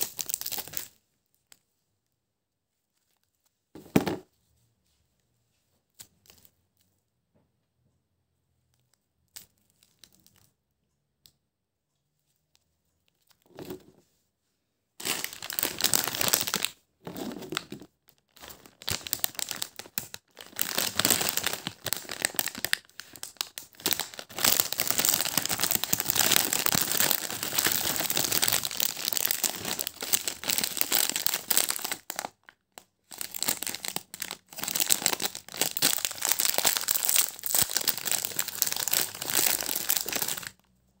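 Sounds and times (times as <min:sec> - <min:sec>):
foil wrapper crinkling and tearing: 0:00.0 - 0:00.9, 0:15.0 - 0:32.5, 0:33.1 - 0:40.6.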